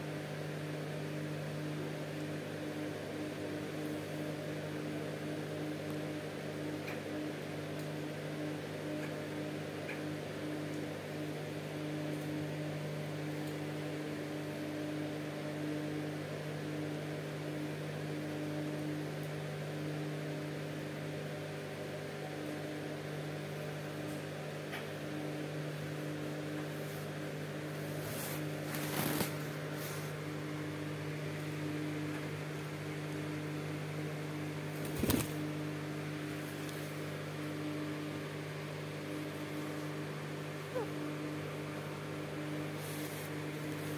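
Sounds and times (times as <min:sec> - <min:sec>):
low electrical hum: 0:00.0 - 0:43.9.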